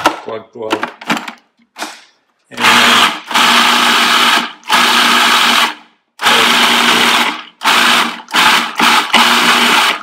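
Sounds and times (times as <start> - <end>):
food processor motor whirring: 2.6 - 10.0.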